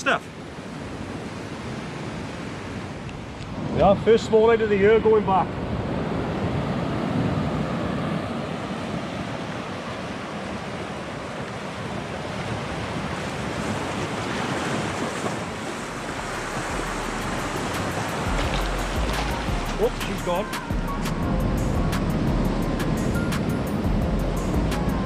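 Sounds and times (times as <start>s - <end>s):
small waves breaking over rocks: 7.2s - 20.8s.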